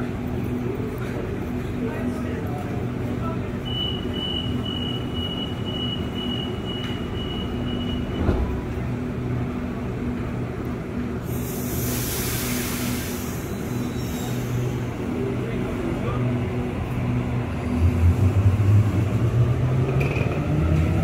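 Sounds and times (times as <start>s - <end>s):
train equipment low hum: 0.0s - 21.0s
loud hiss of air: 11.2s - 14.9s.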